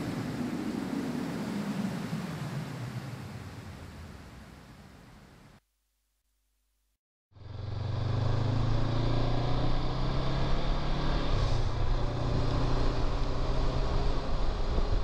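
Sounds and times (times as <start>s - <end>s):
riding wind noise: 0.0s - 5.2s, 8.4s - 15.0s.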